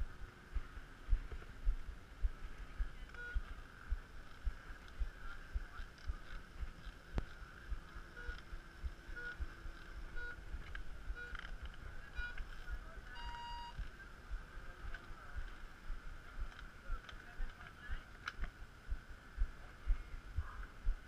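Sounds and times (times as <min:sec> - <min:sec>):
start clock beeping: 0:08.1 - 0:09.5, 0:10.1 - 0:10.4, 0:11.1 - 0:13.9.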